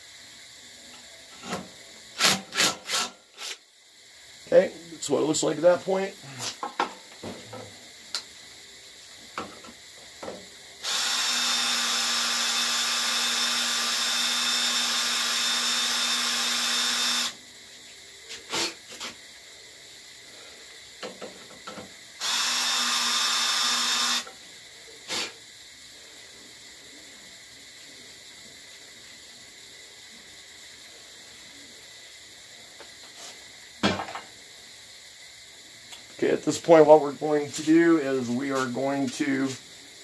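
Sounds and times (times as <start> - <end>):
cordless drill boring into metal: 2.2 - 3.6, 10.8 - 17.4, 22.2 - 24.3.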